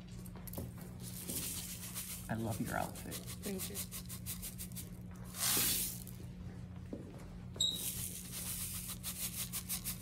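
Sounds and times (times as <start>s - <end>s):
low room hum: 0.0s - 10.0s
brief high squeak: 7.6s - 8.0s.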